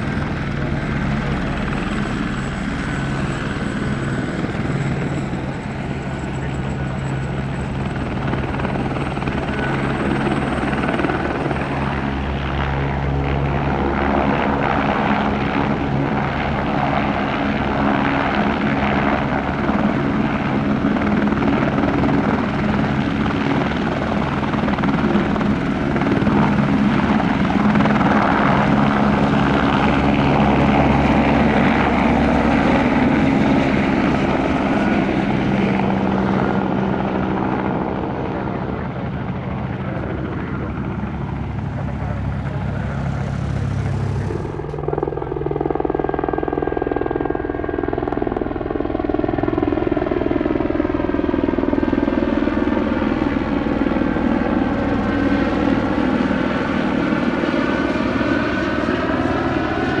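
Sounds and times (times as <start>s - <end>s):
helicopter rotor and engine: 0.0s - 60.0s.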